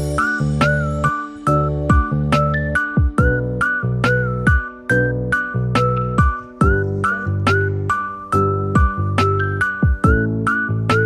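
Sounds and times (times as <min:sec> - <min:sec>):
background music with drum beat: 0:01.9 - 0:05.0, 0:05.7 - 0:11.0.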